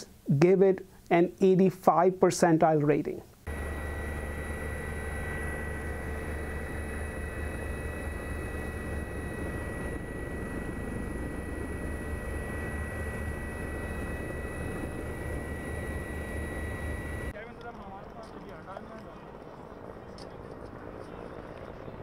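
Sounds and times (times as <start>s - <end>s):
thin high whine: 3.2s - 17.3s
aircraft engine and rotor rumble: 3.3s - 22.0s.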